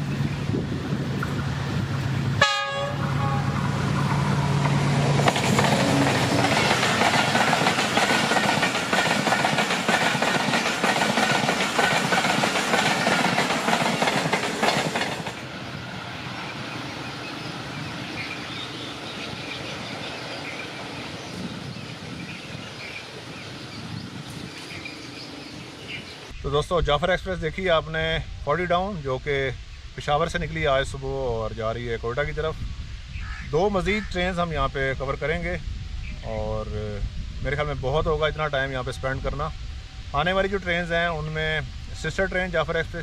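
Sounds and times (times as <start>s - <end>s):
locomotive engine drone: 0.0s - 10.1s, 10.8s - 26.4s
train wheels clattering over rails: 4.0s - 15.5s.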